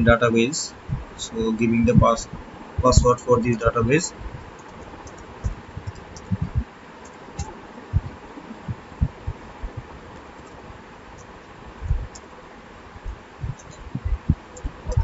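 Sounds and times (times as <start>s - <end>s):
faint hiss: 0.0s - 15.0s
keyboard keystroke thuds: 13.1s - 15.0s.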